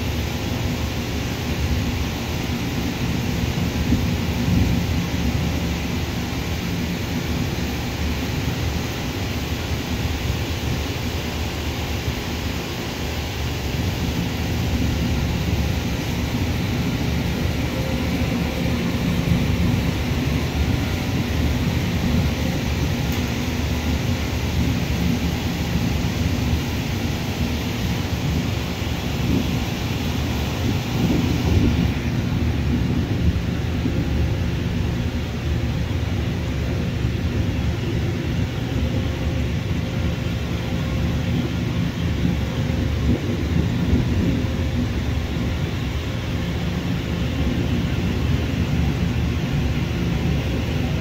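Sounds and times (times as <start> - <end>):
jet engines rumbling: 0.0 - 51.0
wind buffeting microphone: 13.9 - 50.8.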